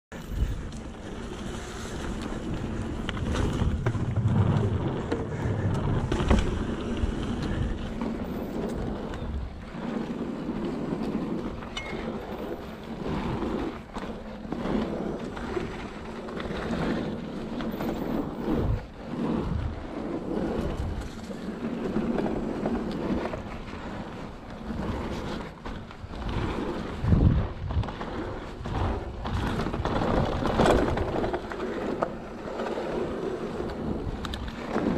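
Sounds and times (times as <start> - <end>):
bike rattling and knocking: 0.1 - 9.6, 27.0 - 32.3
tyres rolling on packed earth: 0.1 - 34.9
wind buffeting microphone: 0.1 - 34.9.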